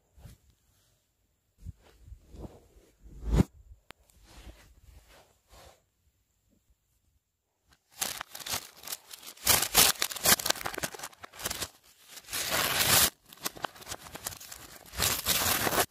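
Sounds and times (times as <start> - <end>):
reversed paper ripping and crinkling: 7.8 - 15.9.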